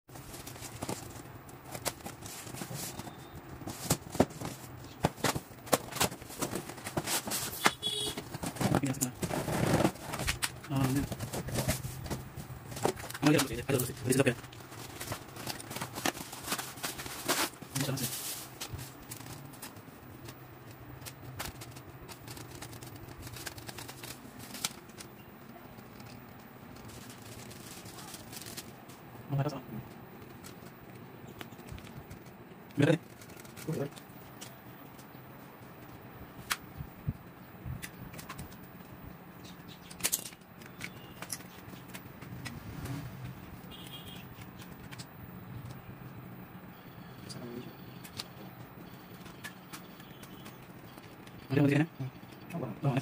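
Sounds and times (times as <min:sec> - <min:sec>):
cardboard being handled: 0:00.1 - 0:34.5
plastic bag rustling: 0:00.1 - 0:34.6.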